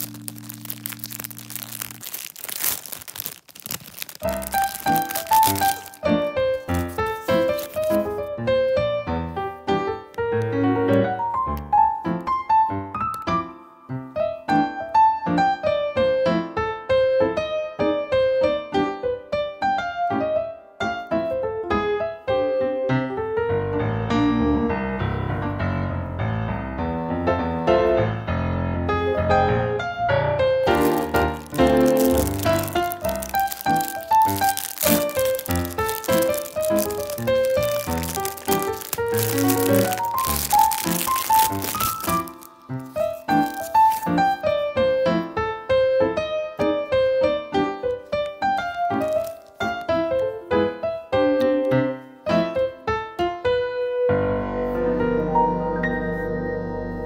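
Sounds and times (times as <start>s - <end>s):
plastic bag crinkling: 0.0s - 8.3s, 30.6s - 44.6s, 47.9s - 50.4s
instrumental piano music: 0.0s - 57.0s
background music: 54.4s - 57.0s.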